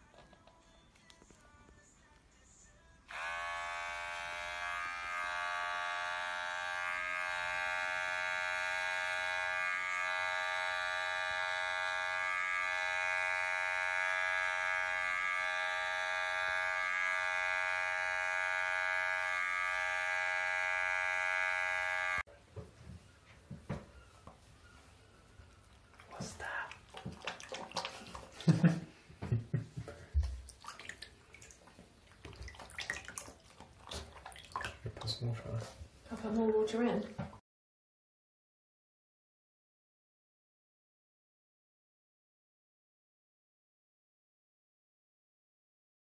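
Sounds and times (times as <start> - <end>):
electric hair clippers buzzing: 3.1 - 22.3.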